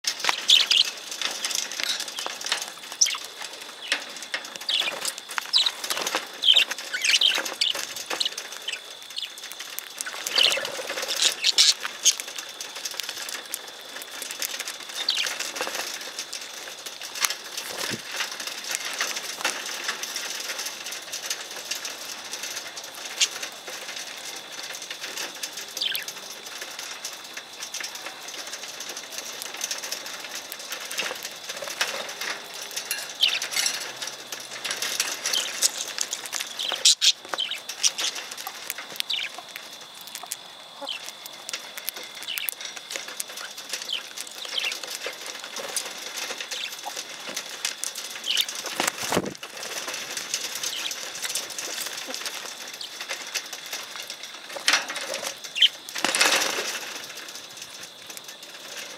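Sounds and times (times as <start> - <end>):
wings flapping: 0.0 - 58.9
budgerigars chirping: 0.4 - 0.9, 3.0 - 4.0, 4.7 - 9.3, 10.0 - 12.2, 36.6 - 38.2.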